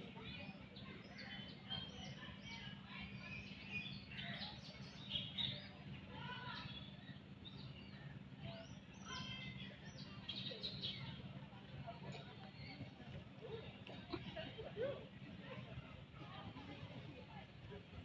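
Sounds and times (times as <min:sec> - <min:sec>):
birds chirping and calling: 0:00.0 - 0:13.0
steady low hum: 0:00.0 - 0:18.0.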